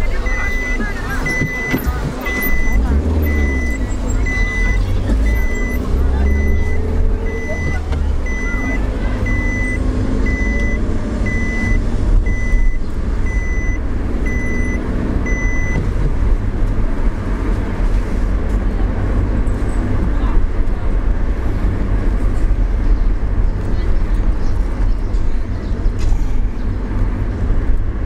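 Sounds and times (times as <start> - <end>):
car engine and road noise: 0.0 - 28.0
electronic warning beep: 0.1 - 15.8.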